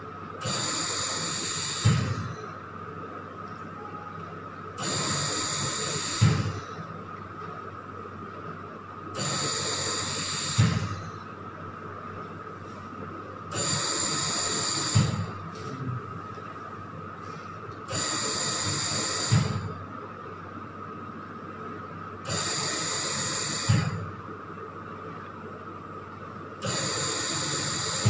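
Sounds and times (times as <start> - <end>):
ventilator thump: 1.8 - 2.2, 6.2 - 6.6, 10.6 - 10.9, 14.9 - 16.0, 19.3 - 19.7, 23.7 - 24.1
faint steady high tone: 3.7 - 4.3
ventilator gas hiss: 9.2 - 10.9.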